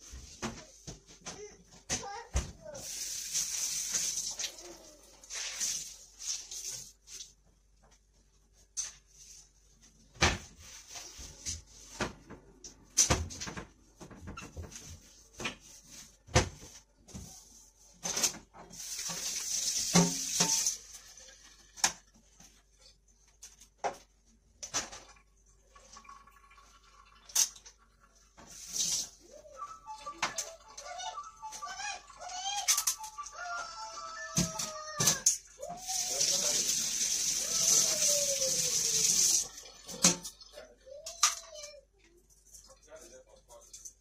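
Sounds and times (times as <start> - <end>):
running water: 2.8 - 7.4, 18.7 - 22.3, 24.8 - 33.4, 34.7 - 40.6
items clattering in sink: 18.0 - 29.2, 39.4 - 41.6.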